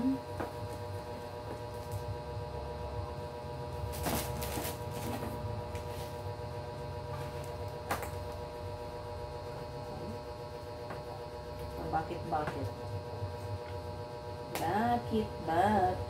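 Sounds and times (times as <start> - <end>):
steady low hum: 0.0 - 16.0
plastic wrapping rustling: 3.9 - 5.9.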